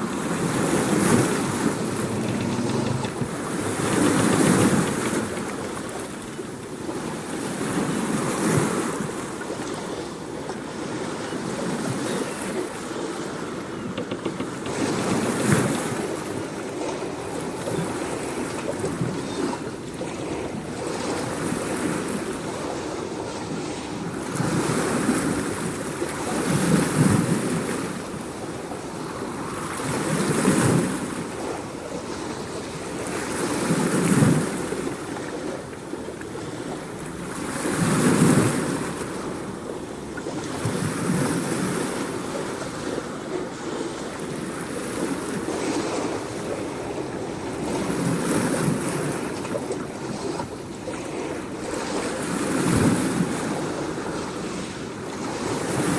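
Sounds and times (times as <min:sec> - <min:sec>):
ocean waves washing in: 0:00.0 - 0:13.8.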